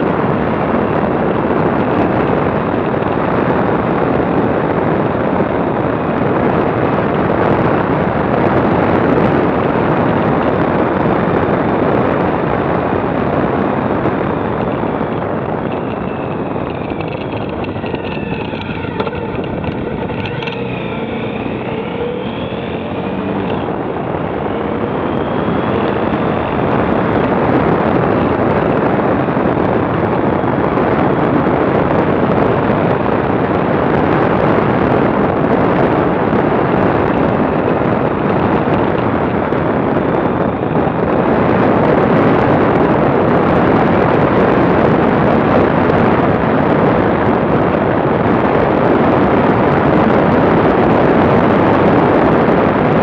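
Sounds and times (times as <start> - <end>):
wind buffeting microphone: 0.0 - 53.0
motorcycle engine: 12.7 - 41.9.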